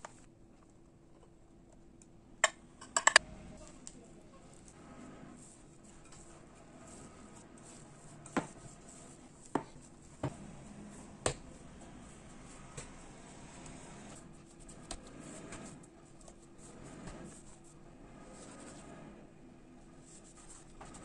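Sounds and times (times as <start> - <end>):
hands kneading dough: 3.8 - 19.3.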